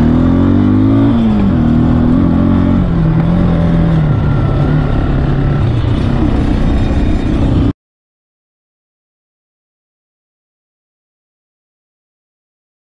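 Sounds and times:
atv engine running: 0.0s - 7.7s.

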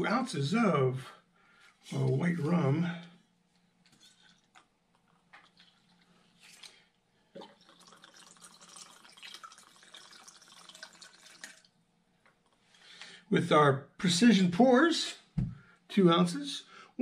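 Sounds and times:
liquid trickling onto ice: 3.9s - 11.8s.

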